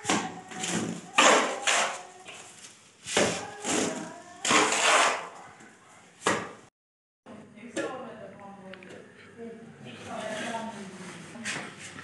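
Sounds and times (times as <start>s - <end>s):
steel trowel scraping mortar: 1.2s - 2.1s, 4.5s - 5.4s.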